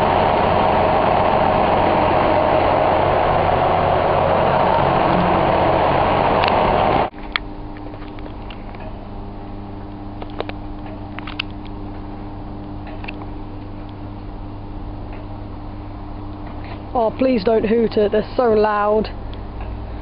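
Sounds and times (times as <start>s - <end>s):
train rumble inside carriage: 0.0s - 7.1s
steady low hum with held tones: 0.0s - 20.0s.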